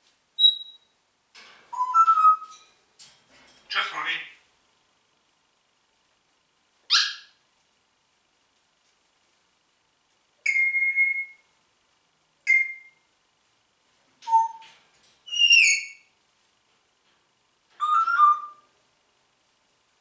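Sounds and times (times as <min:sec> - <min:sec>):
parrot whistling: 0:01.8 - 0:02.5, 0:10.4 - 0:11.4, 0:12.5 - 0:13.0, 0:17.8 - 0:18.6.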